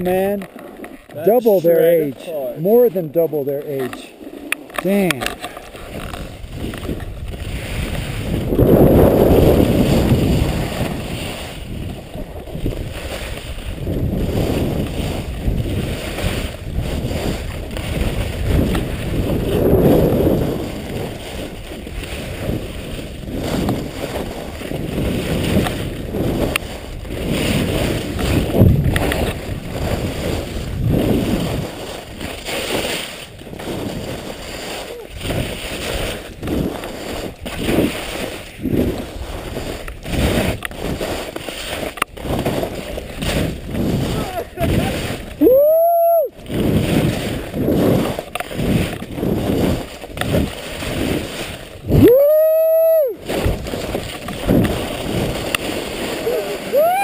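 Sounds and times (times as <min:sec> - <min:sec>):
skis scraping snow: 0:00.0 - 0:57.0
wind buffeting microphone: 0:00.0 - 0:57.0.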